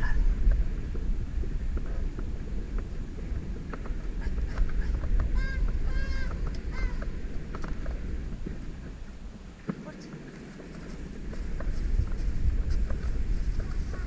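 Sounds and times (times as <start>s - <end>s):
footsteps on dirt floor: 9.6s - 14.0s.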